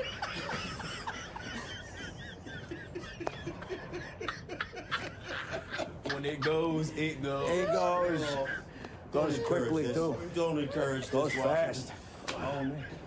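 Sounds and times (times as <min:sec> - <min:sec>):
men laughing hard: 0:00.0 - 0:08.7.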